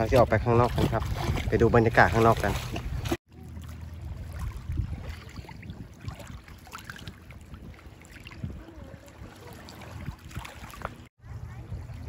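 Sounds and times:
small water splashes: 0.0s - 12.0s
steady low rumble: 2.0s - 9.0s.

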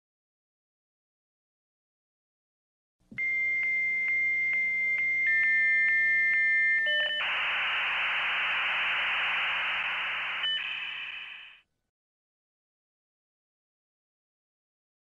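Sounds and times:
modem high whistle: 6.8s - 11.6s
loud hissing static: 7.2s - 11.6s.

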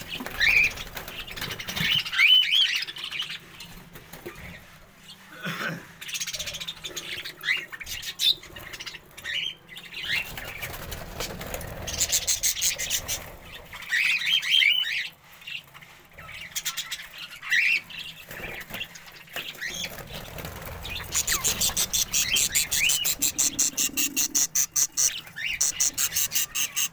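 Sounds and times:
budgerigars chirping: 11.9s - 15.2s, 16.2s - 26.9s.

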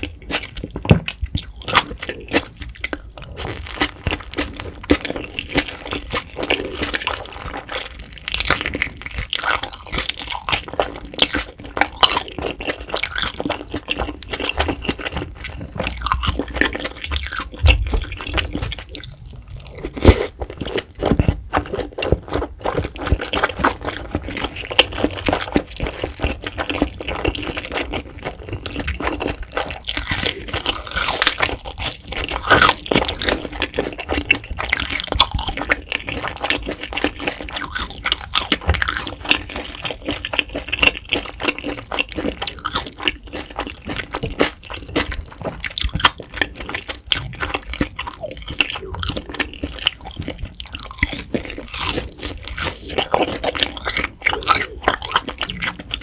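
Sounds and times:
person chewing crunchy food: 0.0s - 56.0s
wet mouth clicks: 37.0s - 56.0s.

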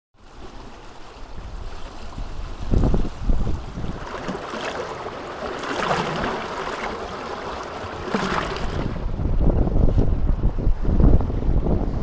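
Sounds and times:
river water rushing and splashing: 0.2s - 9.5s.

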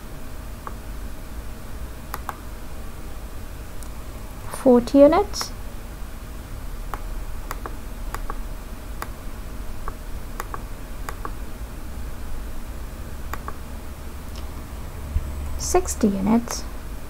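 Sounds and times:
faint low hum: 0.0s - 17.0s
keyboard and mouse clicking: 2.1s - 2.4s, 6.9s - 8.4s, 9.8s - 11.4s, 13.3s - 13.6s.

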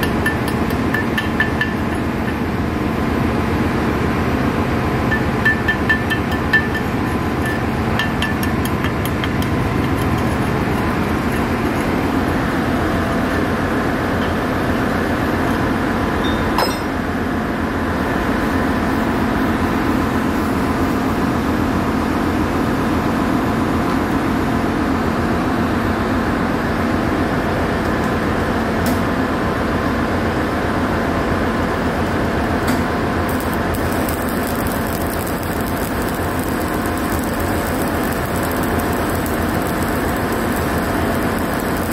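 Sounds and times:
arc welding hiss: 33.2s - 41.9s.

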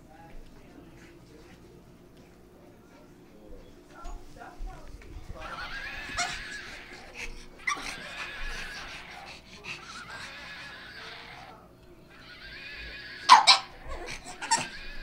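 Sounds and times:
electronic toy horse neighing: 5.4s - 7.0s, 7.6s - 15.0s.

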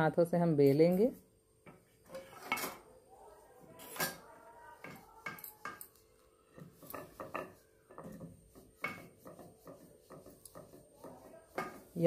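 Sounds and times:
rolling pin rubbing dough: 6.5s - 12.0s
rolling pin knocking on stone board: 6.6s - 12.0s.

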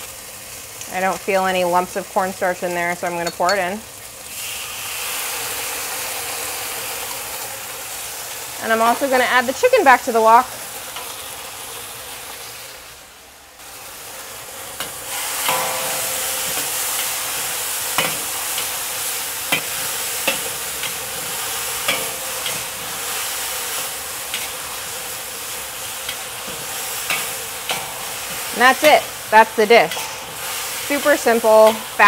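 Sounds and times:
food sizzling in a wok: 0.0s - 32.0s
spatula scraping a wok: 14.8s - 32.0s.

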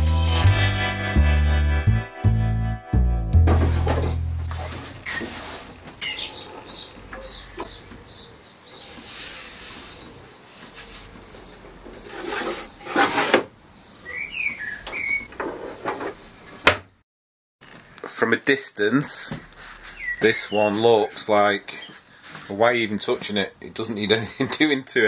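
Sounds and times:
intro music: 0.0s - 4.8s
wooden knocks and clunks: 3.4s - 8.1s, 14.8s - 17.0s
wooden drawer sliding: 3.5s - 6.8s, 11.8s - 13.5s.

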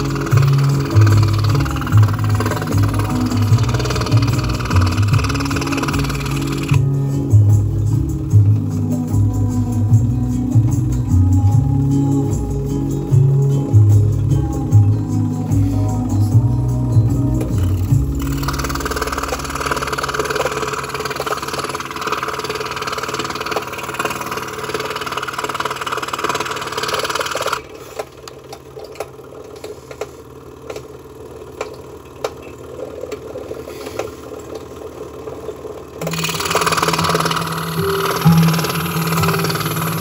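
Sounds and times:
scroll saw blade chattering: 0.0s - 6.8s, 36.0s - 40.0s
scattered clicks: 36.0s - 40.0s.

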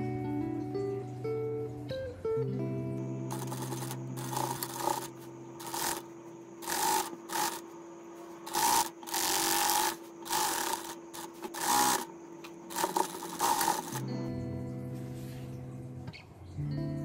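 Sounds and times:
faint steady hum: 0.0s - 17.0s
sewing machine stitching: 3.3s - 7.7s, 8.5s - 12.1s, 12.7s - 14.1s.

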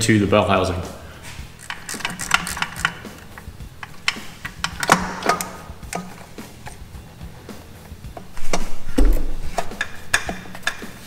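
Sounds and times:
ratchet clicking: 1.5s - 6.8s, 9.6s - 11.0s.

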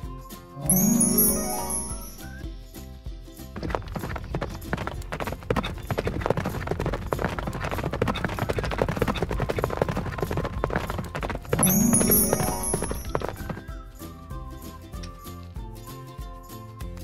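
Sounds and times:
light background music: 0.0s - 17.0s
horse hooves clip-clopping: 3.5s - 13.8s.

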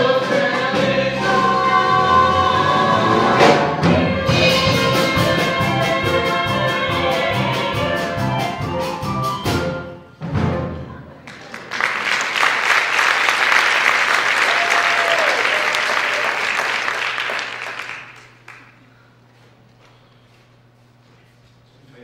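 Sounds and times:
audience applauding: 11.2s - 18.9s.

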